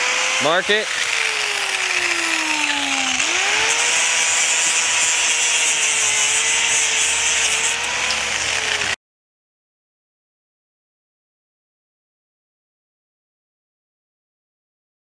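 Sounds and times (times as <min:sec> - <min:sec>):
angle grinder cutting plastic: 0:00.0 - 0:09.0.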